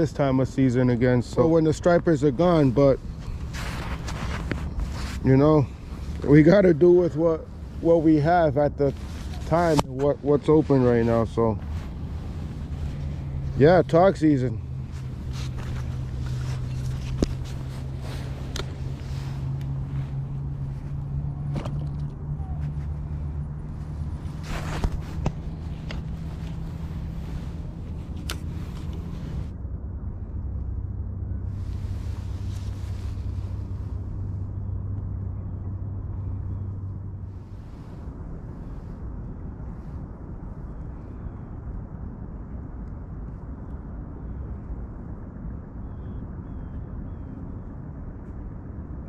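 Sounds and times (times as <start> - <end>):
steady low rumble: 0.0 - 49.0
fishing rod handling rustle: 3.0 - 6.3, 8.9 - 22.8, 23.8 - 29.5.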